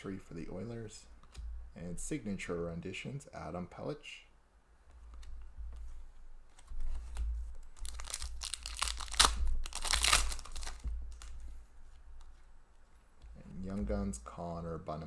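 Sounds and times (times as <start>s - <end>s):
foil wrapper tearing and crinkling: 7.7s - 11.3s.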